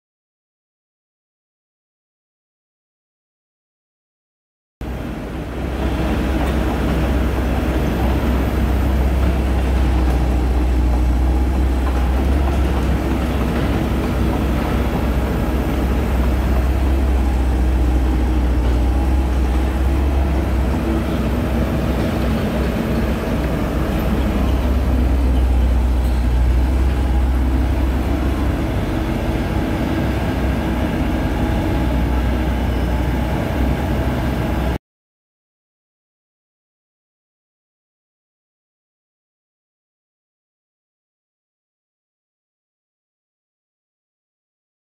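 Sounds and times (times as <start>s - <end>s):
diesel engine droning: 4.8s - 34.8s.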